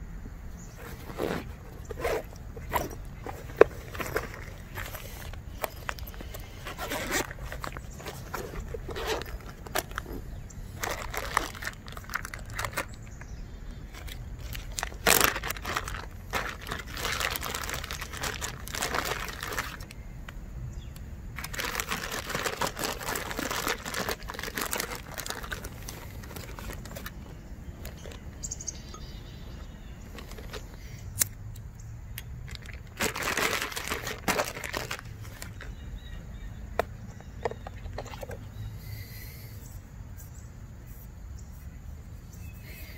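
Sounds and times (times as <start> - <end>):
backpack fabric rustling: 0.7 - 13.0, 13.9 - 19.9, 21.4 - 28.2
plastic bag crinkling: 0.7 - 20.0, 21.4 - 28.5, 30.0 - 30.8, 32.4 - 35.8.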